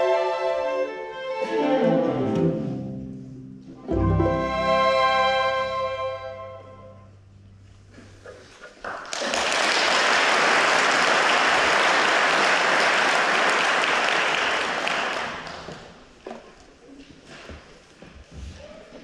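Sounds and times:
string orchestra chord: 0:00.6 - 0:07.1
audience applause: 0:08.4 - 0:16.1.

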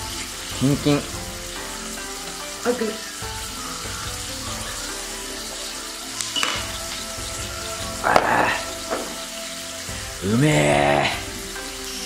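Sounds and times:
glass clink: 0:06.2 - 0:06.7.

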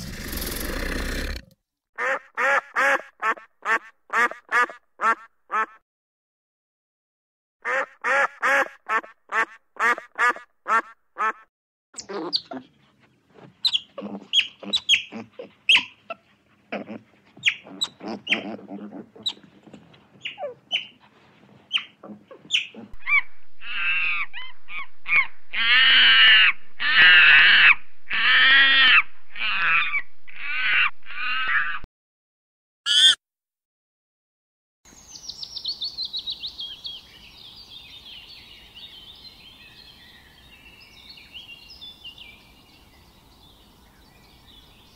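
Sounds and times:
animal chirps: 0:13.6 - 0:16.0, 0:17.4 - 0:18.6, 0:21.7 - 0:26.4, 0:32.9 - 0:33.2.

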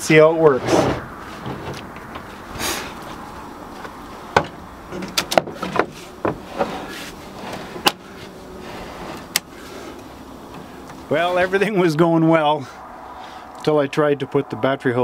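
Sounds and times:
heavy battery clunks and knocks: 0:00.6 - 0:02.4, 0:03.8 - 0:08.1
battery scraping on wood: 0:00.6 - 0:11.1.

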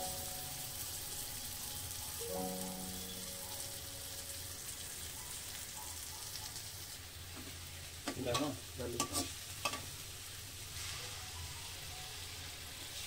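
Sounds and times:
onions sizzling in a pan: 0:00.0 - 0:13.0
steel spoon scraping a pan: 0:09.0 - 0:09.8.

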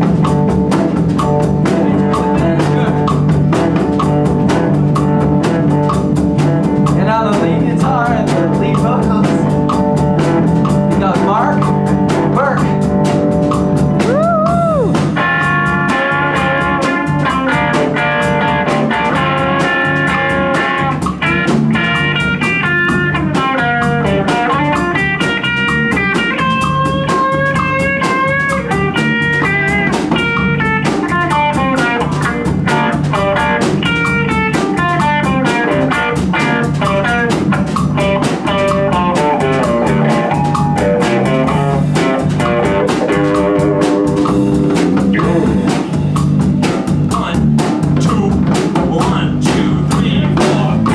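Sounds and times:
bass guitar: 0:00.0 - 0:50.9
drum kit: 0:00.0 - 0:50.9
electric guitar solo: 0:14.0 - 0:44.2.

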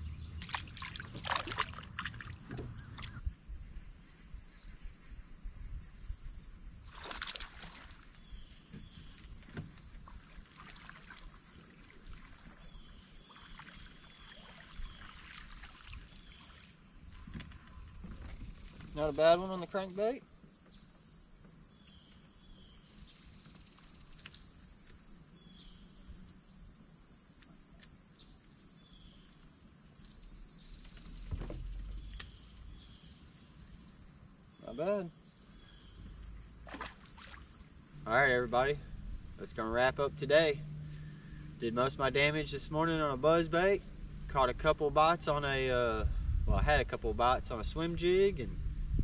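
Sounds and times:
low steady rumble: 0:00.0 - 0:03.9, 0:31.2 - 0:34.4, 0:35.4 - 0:49.0
dull thump: 0:02.4 - 0:03.2, 0:31.2 - 0:32.1.

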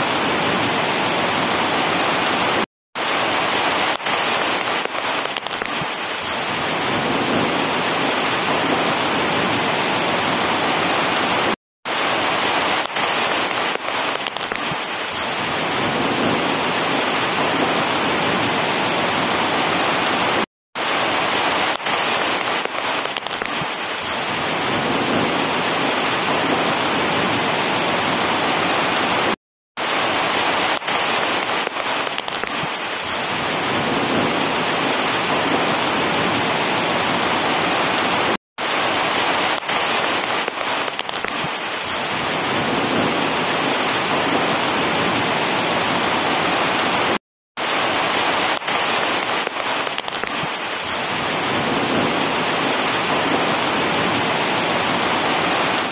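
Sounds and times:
heavy rain falling: 0:00.0 - 0:55.9
sharp raindrop hits: 0:03.0 - 0:08.5, 0:11.4 - 0:17.7, 0:20.8 - 0:26.3, 0:29.8 - 0:36.4, 0:38.6 - 0:43.2, 0:47.6 - 0:53.8.

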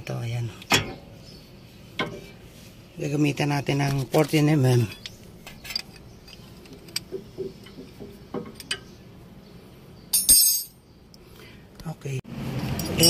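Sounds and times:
ringing metallic clink: 0:10.1 - 0:10.8.

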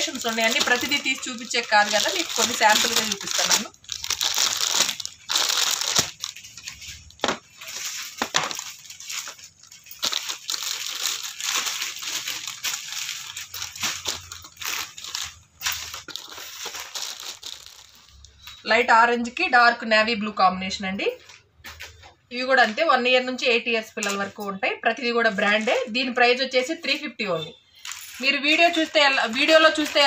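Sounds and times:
plastic bags crinkling: 0:00.0 - 0:18.6, 0:27.7 - 0:30.0.

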